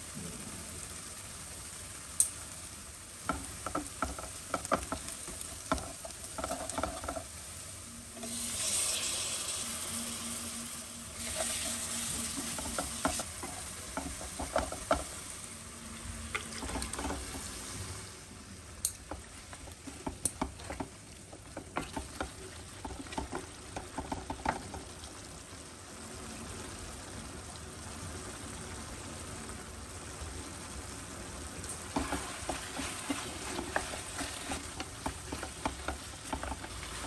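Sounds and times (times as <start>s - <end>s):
curry sizzling in a pan: 0.0s - 37.0s
spatula scraping a pan: 3.3s - 7.4s, 11.2s - 15.2s, 16.5s - 17.6s, 19.1s - 24.8s, 32.0s - 37.0s.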